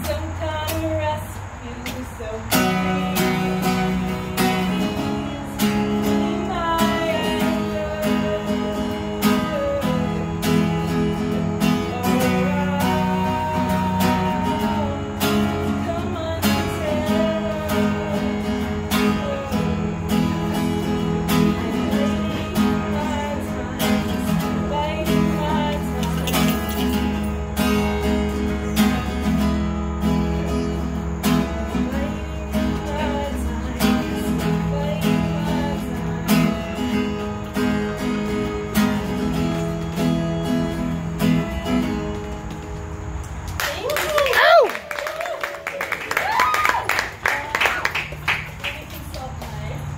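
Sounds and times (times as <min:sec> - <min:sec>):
woman singing: 0:00.0 - 0:27.4, 0:30.8 - 0:37.3
acoustic guitar strumming: 0:00.0 - 0:43.6.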